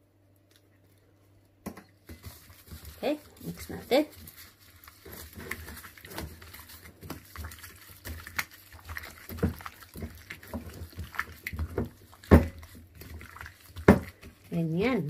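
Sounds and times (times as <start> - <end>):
hands mixing wet marinade: 0.3 - 15.0.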